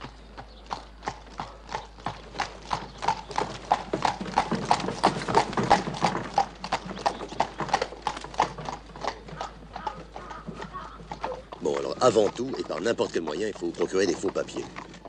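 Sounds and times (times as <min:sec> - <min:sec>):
horse hooves clip-clopping on pavement: 0:00.0 - 0:15.0.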